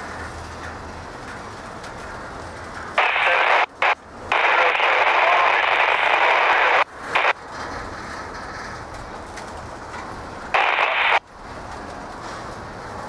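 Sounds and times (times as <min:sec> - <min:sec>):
faint garbled radio voice: 0:03.0 - 0:07.4, 0:10.6 - 0:11.2
radio static burst: 0:03.0 - 0:07.4, 0:10.6 - 0:11.2.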